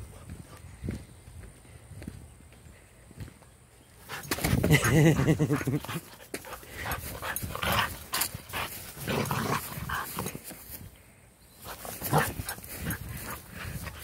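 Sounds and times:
dog making play noises: 4.1s - 10.5s.

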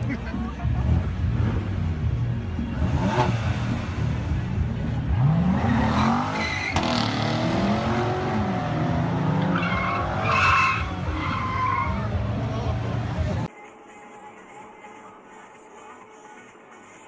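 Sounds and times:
car engine revving: 0.0s - 13.5s
tyres squealing: 9.3s - 12.6s.

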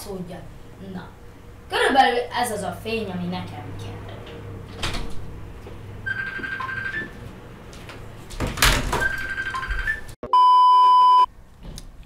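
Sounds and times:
loud steady electronic beep: 9.0s - 11.3s.

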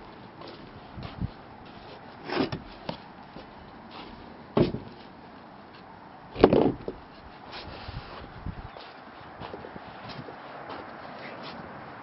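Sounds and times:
heavy footsteps on wooden boards: 0.4s - 5.2s, 6.4s - 7.1s.

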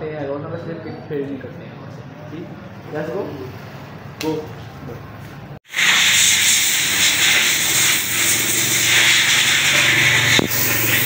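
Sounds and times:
pressure washer water jet spraying: 5.7s - 11.0s.

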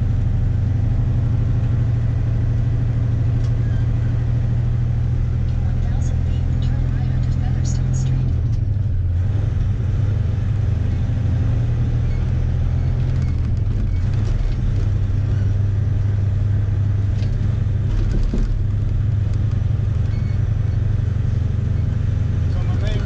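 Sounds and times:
truck diesel engine rumbling: 0.0s - 23.0s
faint clicks and rattles: 12.9s - 15.0s.

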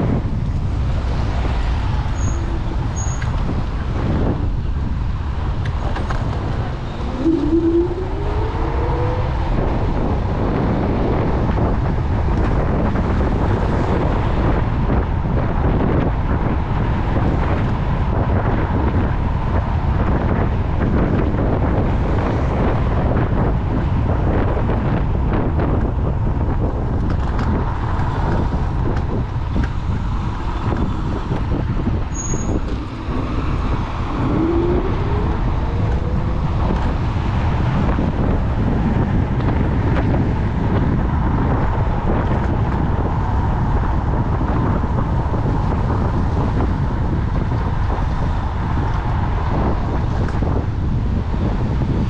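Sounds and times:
wind and road rumble: 0.0s - 52.0s
short rising whine: 6.7s - 9.4s.

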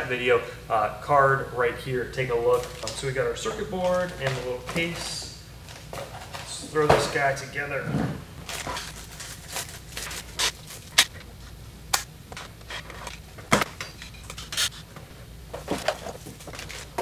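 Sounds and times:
plastic packaging crinkling: 2.5s - 6.5s, 8.4s - 11.5s, 15.7s - 17.0s.

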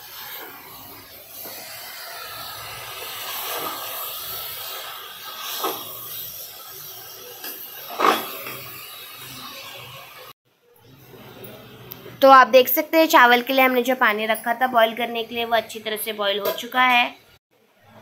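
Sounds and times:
spatula scraping a pot: 0.0s - 10.2s
food sizzling in a pot: 0.0s - 11.0s.

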